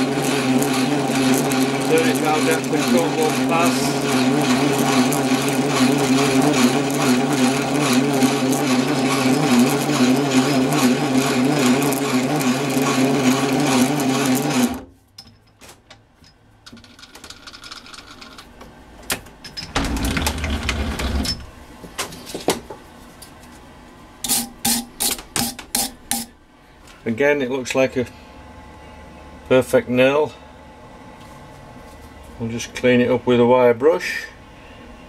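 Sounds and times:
metal lathe running: 0.0s - 14.8s.

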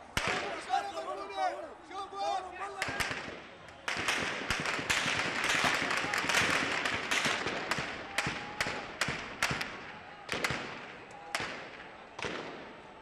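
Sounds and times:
crowd noise in the street: 0.0s - 13.0s
sharp bangs and cracks: 2.8s - 12.7s.

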